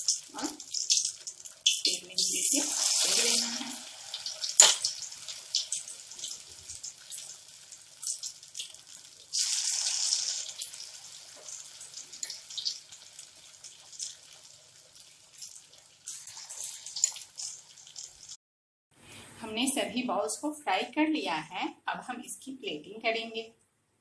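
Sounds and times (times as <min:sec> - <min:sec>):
food deep-frying in hot oil: 0:00.0 - 0:18.4.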